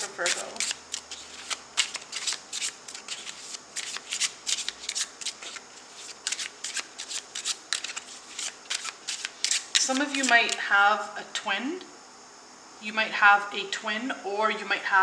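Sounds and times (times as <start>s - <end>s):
cards being shuffled: 0.0s - 10.6s.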